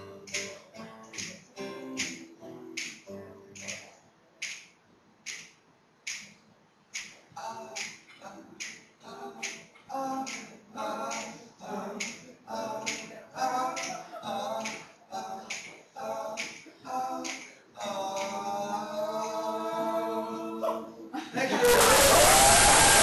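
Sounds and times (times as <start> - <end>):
sharp finger snaps: 2.0 - 7.2
men singing unaccompanied: 7.4 - 23.0.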